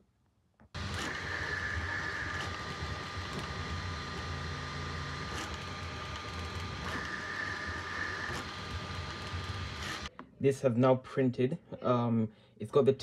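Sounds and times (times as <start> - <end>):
high whine: 0.8 - 10.1
printer motors humming: 0.8 - 10.1.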